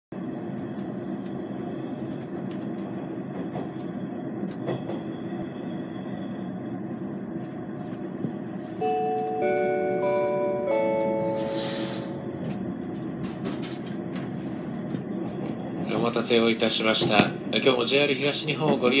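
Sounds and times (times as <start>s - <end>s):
train carriage hum and rumble: 0.1s - 19.0s
electronic chime melody: 8.8s - 12.4s.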